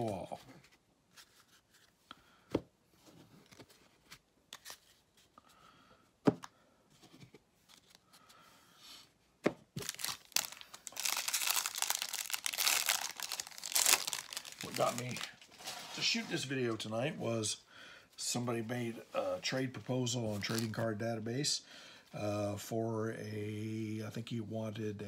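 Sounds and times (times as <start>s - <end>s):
wrapper crinkling and tearing: 9.8s - 15.8s.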